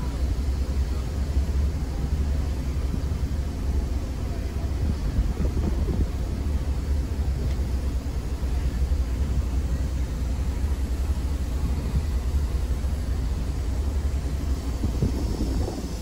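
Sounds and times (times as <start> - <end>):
car interior low rumble: 0.0 - 16.0.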